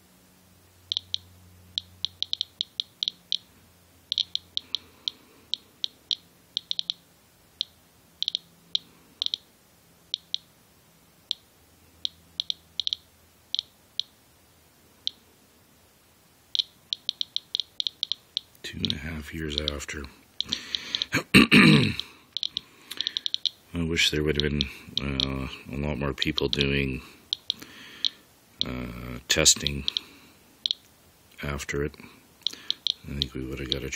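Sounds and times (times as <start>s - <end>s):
geiger counter clicking: 0.9s - 7.0s, 7.6s - 9.5s, 10.1s - 10.5s, 11.3s - 14.2s, 15.0s - 15.2s, 16.5s - 21.2s, 22.0s - 23.6s, 24.3s - 25.6s, 26.2s - 30.9s, 32.4s - 33.9s.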